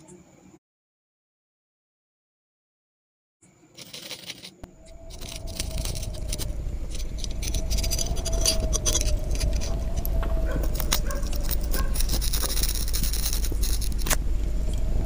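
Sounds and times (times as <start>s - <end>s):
steady low hum: 3.4s - 15.0s
metal gun parts clicking and rattling: 3.8s - 4.5s, 10.6s - 14.2s.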